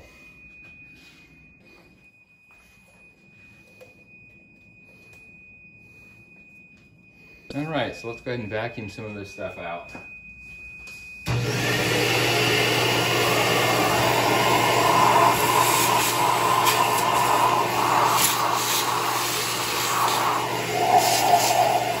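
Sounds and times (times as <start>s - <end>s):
vacuum cleaner running: 11.2s - 22.0s.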